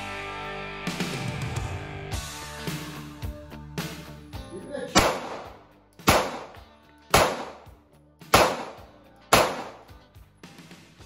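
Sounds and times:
pistol shots: 4.9 - 7.7, 8.3 - 9.9.

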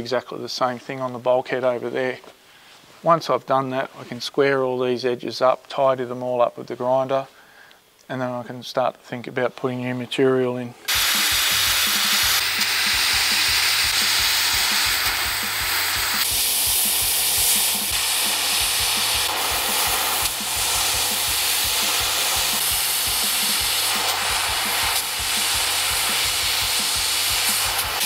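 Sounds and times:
cutting torch hissing: 10.9 - 28.0.

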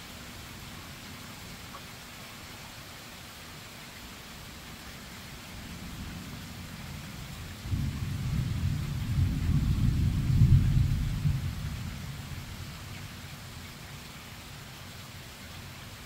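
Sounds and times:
steady rain: 0.0 - 16.0
thunder rumble: 6.8 - 12.6.

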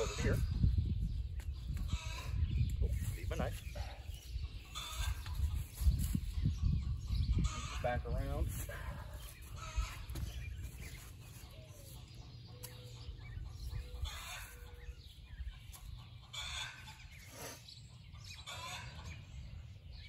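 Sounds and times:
hens clucking: 4.4 - 5.8, 7.1 - 19.3.

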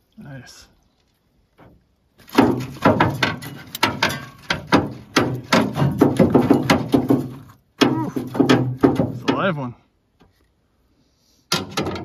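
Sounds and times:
fish thrashing against canoe hull: 1.6 - 9.3.

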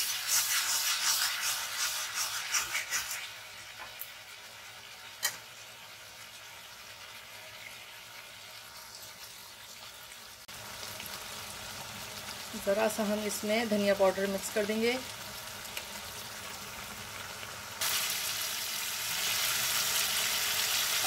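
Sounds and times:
wooden spatula scraping vegetables: 0.0 - 3.2
vegetables sizzling in oil: 0.0 - 21.0.

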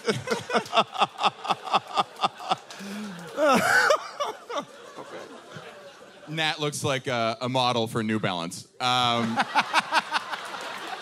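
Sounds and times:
man laughing: 0.0 - 5.7, 9.1 - 10.4.

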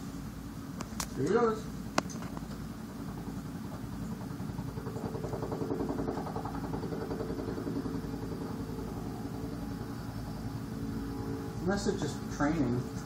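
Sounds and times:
helicopter engine hum: 0.0 - 13.0
helicopter rotor beating: 0.6 - 13.0.

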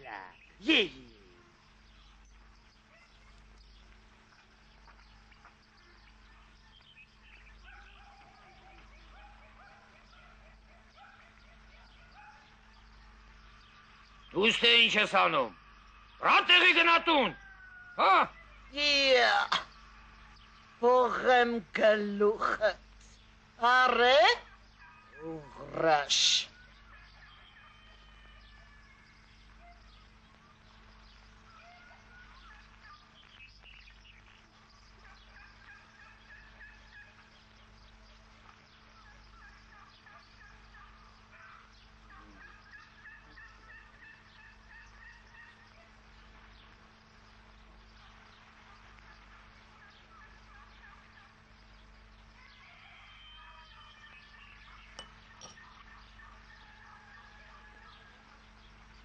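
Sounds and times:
steady low hum: 0.0 - 59.0
fowl warbling calls: 24.4 - 30.6, 31.3 - 46.8, 48.0 - 51.6, 52.4 - 58.8.

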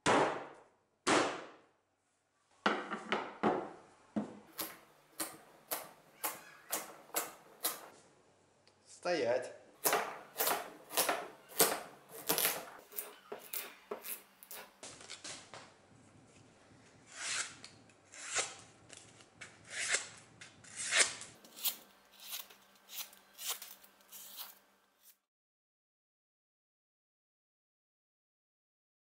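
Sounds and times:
cleaver chopping on wooden board: 9.8 - 14.2
slicing through paper: 20.7 - 25.2.

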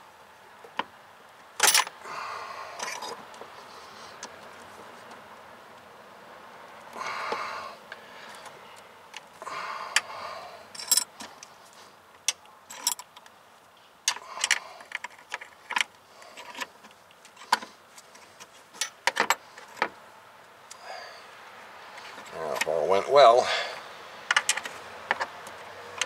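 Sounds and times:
metal tools clicking on brake line: 10.7 - 11.5, 24.3 - 26.0.

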